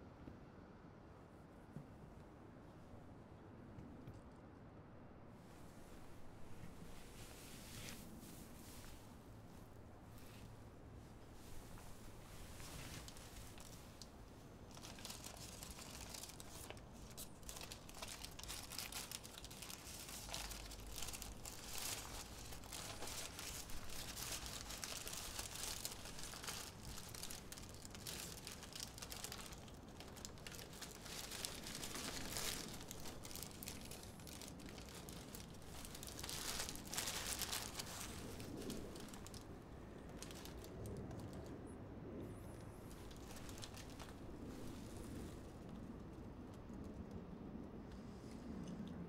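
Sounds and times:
wrapper crinkling: 12.1 - 41.5, 42.8 - 46.2.

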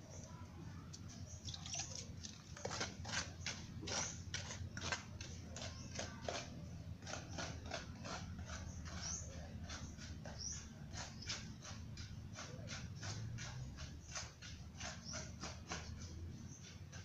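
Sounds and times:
steady low hum: 0.0 - 17.0
mortar scraped in metal basin: 0.9 - 17.0.

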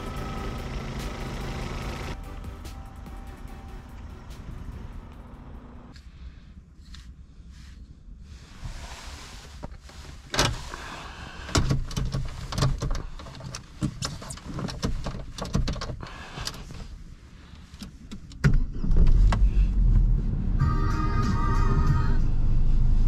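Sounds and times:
low rumble: 0.0 - 8.8, 18.6 - 23.0
sharp clicks and knocks: 11.5 - 16.6.

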